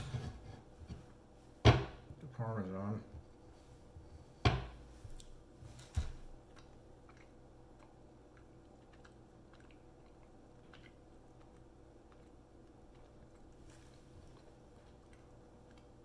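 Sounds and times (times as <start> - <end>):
knife knocking on cutting board: 4.4 - 4.8
faint chewing: 4.9 - 16.0.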